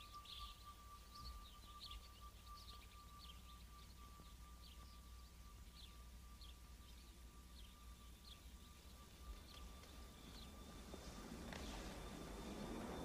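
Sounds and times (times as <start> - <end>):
faint bird chirps: 0.0 - 13.0
low steady rumble: 0.0 - 13.0
thin steady tone: 0.0 - 13.0.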